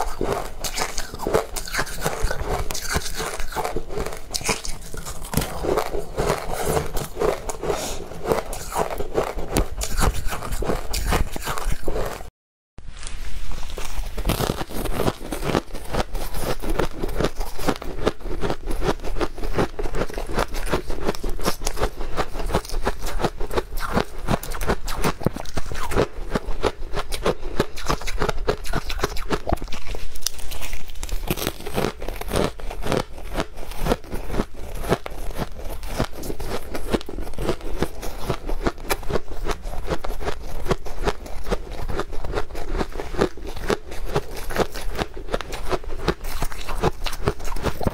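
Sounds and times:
shaved ice crunching: 0:28.1 - 0:33.0.

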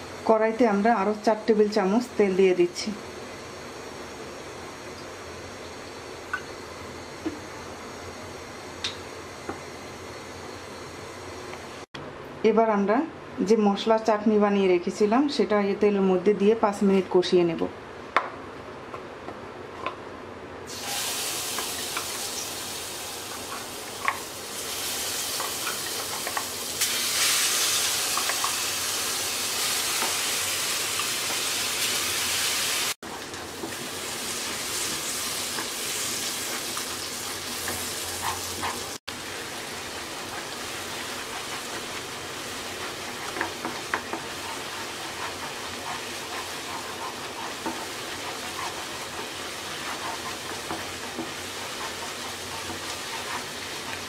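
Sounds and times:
paste sizzling in hot oil: 0:20.7 - 0:54.0
wooden spatula scraping a pan: 0:40.1 - 0:54.0.

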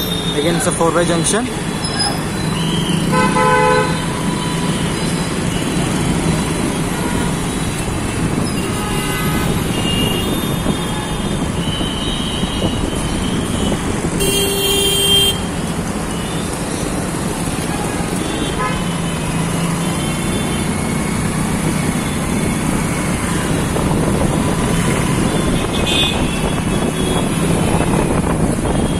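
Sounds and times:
auto-rickshaw engine and road noise: 0:00.0 - 0:28.9
vehicle horns honking: 0:03.0 - 0:04.7, 0:08.4 - 0:15.5, 0:18.2 - 0:19.2, 0:24.8 - 0:28.9.

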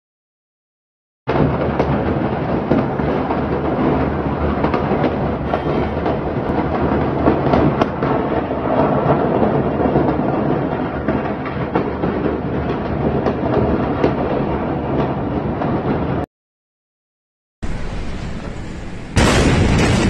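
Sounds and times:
fireworks crackling: 0:01.3 - 0:16.2, 0:17.6 - 0:20.0.

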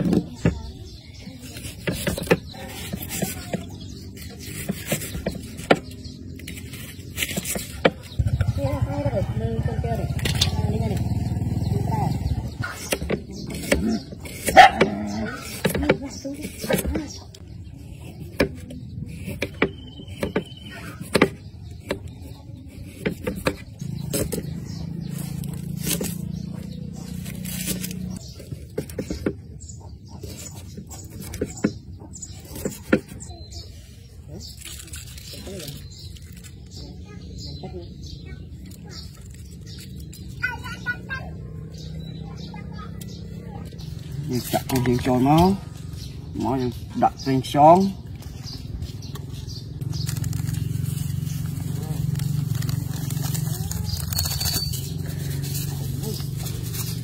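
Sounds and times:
knife slicing onion on wood: 0:00.0 - 0:08.4, 0:12.3 - 0:33.4.

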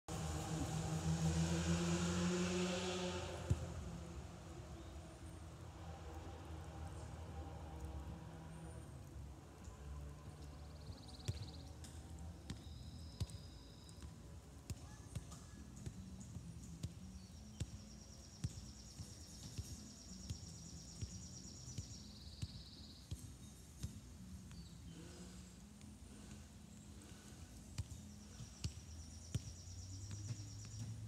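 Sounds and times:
low outdoor rumble: 0:00.1 - 0:11.1.

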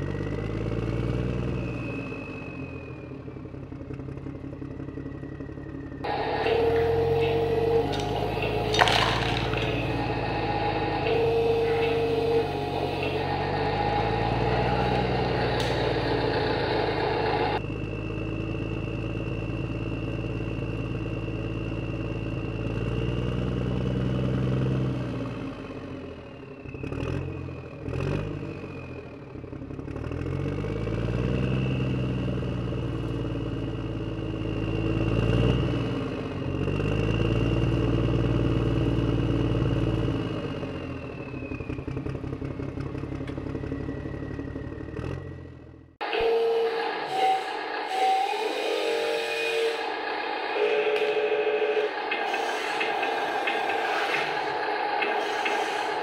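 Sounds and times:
plastic toy blocks clattering: 0:08.7 - 0:09.9.

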